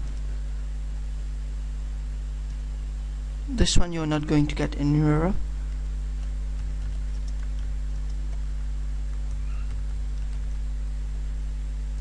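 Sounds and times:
low electrical hum: 0:00.0 - 0:12.0
computer keyboard typing clicks: 0:05.7 - 0:08.5, 0:09.1 - 0:10.6.

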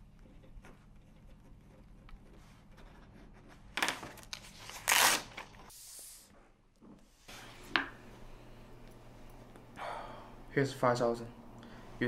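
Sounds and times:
paper check tearing: 0:04.4 - 0:05.5.

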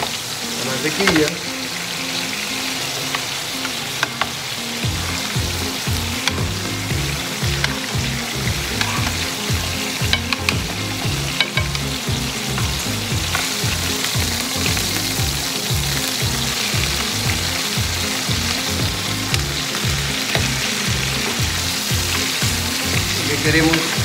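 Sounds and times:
butter and oil sizzling in pan: 0:00.0 - 0:24.0
metal utensils clicking on pan: 0:00.6 - 0:01.5, 0:08.6 - 0:24.0
low regular beat: 0:04.0 - 0:24.0.

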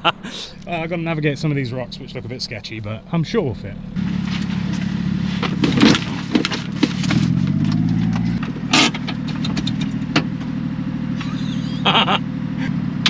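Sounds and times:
small truck engine revving: 0:00.0 - 0:13.0
truck knocking and rattling on rocks: 0:04.2 - 0:10.4.

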